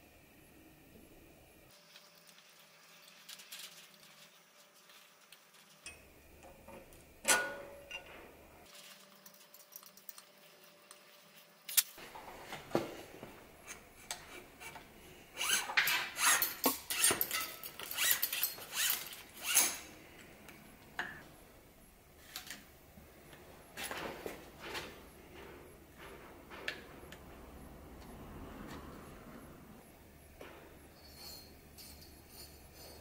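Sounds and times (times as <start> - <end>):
steel cable rubbing and scraping: 13.6 - 19.8.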